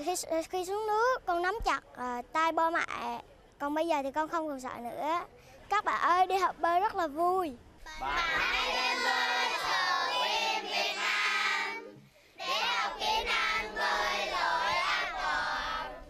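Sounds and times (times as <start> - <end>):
children singing in unison: 7.9 - 16.0.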